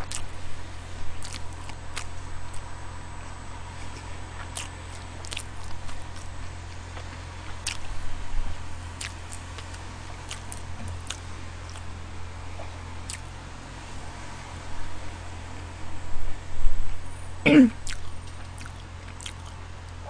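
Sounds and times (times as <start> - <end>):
close chewing: 0.0 - 0.4, 1.1 - 2.7, 3.7 - 8.2, 8.8 - 11.9, 12.5 - 13.3, 17.8 - 20.0
low electrical hum: 0.0 - 20.0.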